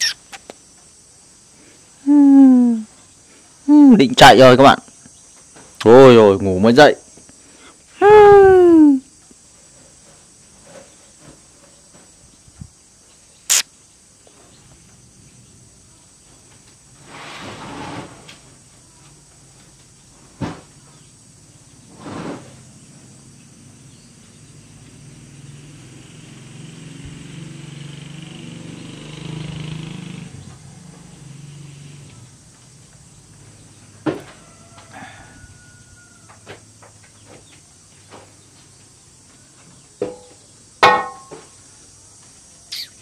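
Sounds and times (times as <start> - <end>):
sharp click: 13.5 - 13.7.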